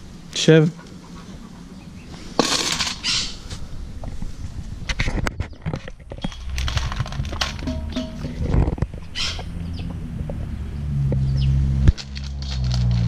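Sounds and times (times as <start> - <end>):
dog crunching dry food: 6.2 - 7.8, 11.9 - 13.0
food clinking against metal bowl: 7.5 - 8.6.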